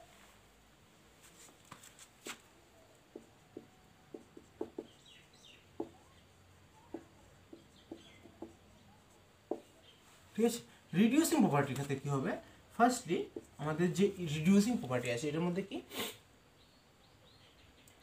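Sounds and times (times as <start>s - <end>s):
marker tapping on whiteboard: 3.1s - 8.7s, 9.4s - 9.8s, 13.2s - 13.6s
marker squeaking: 3.1s - 10.0s, 12.8s - 14.9s.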